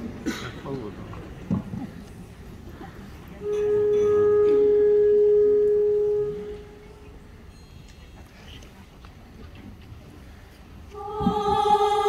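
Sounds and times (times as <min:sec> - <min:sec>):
wind instrument holding a note: 0:03.4 - 0:07.2.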